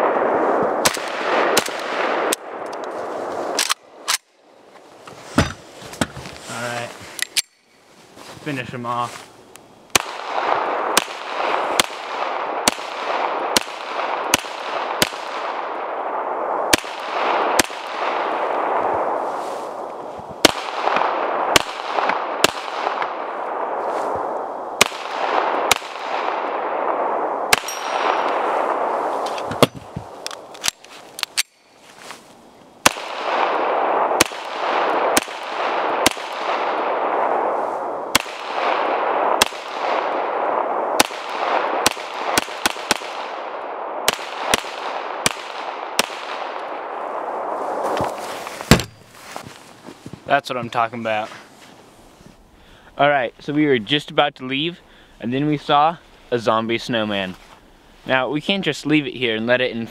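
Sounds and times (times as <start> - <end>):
pistol shots echoing: 9.9 - 18.8, 20.4 - 23.7, 24.8 - 28.9, 32.8 - 37.2, 38.1 - 47.0.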